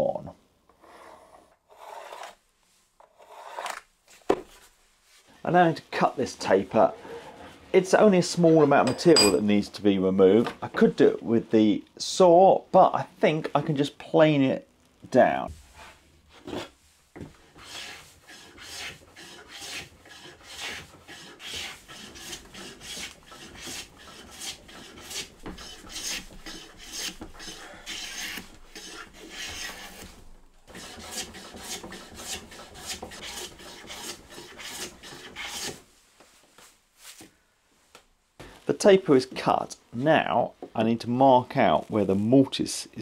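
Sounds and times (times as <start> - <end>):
hand plane shaving wood: 1.7 - 2.4, 3.1 - 3.8, 17.4 - 35.8.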